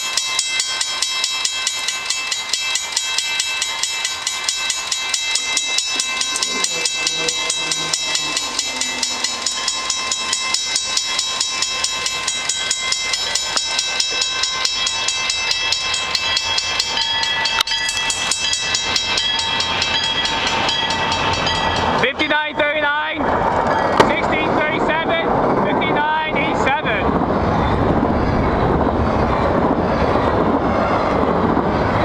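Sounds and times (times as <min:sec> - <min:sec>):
level-crossing warning bell: 0:00.0 - 0:26.0
approaching freight train: 0:00.0 - 0:32.0.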